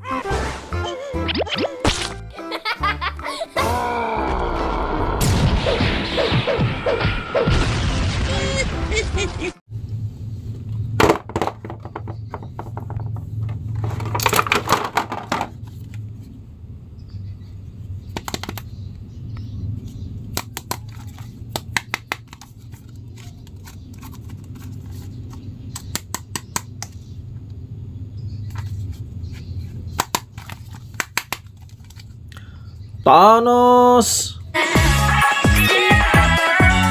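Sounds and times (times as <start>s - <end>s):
plastic figures clicking and knocking: 11.0s - 15.6s, 18.1s - 18.7s, 29.9s - 32.1s.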